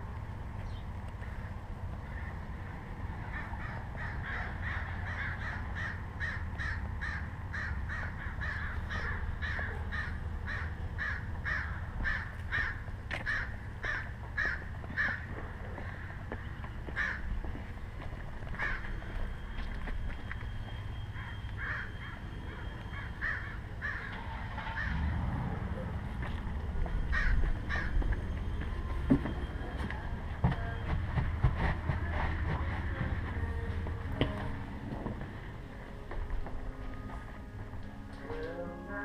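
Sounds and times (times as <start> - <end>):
bird calling: 18.5 - 25.1, 26.9 - 30.0.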